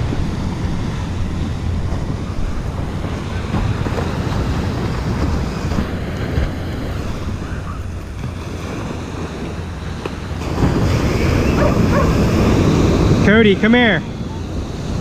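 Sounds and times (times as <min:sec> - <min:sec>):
surf washing on beach: 0:00.0 - 0:15.0
wind buffeting microphone: 0:00.0 - 0:15.0.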